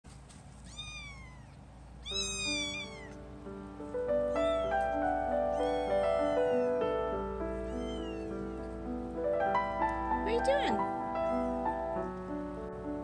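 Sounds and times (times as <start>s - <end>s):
kitten meowing: 0.6s - 3.2s, 4.3s - 4.8s, 5.4s - 7.0s, 7.6s - 8.8s
background music with steady notes: 2.3s - 13.0s.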